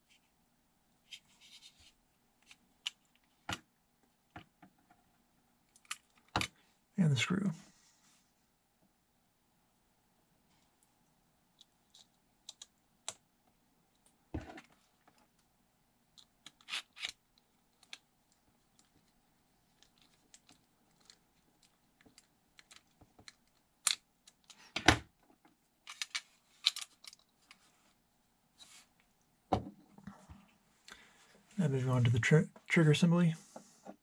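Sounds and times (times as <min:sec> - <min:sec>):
plastic and metal parts clicking: 0:25.9 - 0:27.6.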